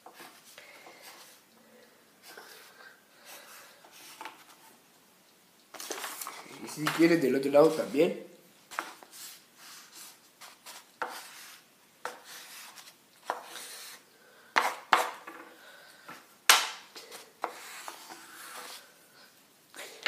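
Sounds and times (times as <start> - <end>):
pencil scratching on paper: 8.8 - 14.0, 17.4 - 18.9.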